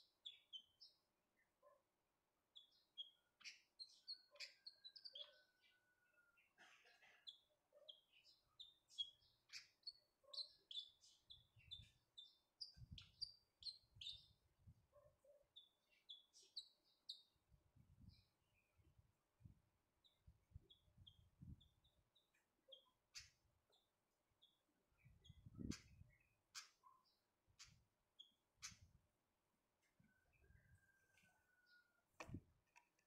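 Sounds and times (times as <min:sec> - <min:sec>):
songbird chirping: 0:00.0 - 0:14.4, 0:15.0 - 0:17.5, 0:29.7 - 0:33.0.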